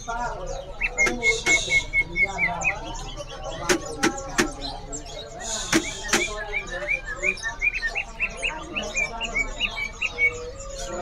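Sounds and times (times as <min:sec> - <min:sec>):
bird rising chirps: 0:00.5 - 0:11.0
sharp bird clicking notes: 0:00.8 - 0:02.0, 0:03.5 - 0:04.8, 0:05.6 - 0:07.0.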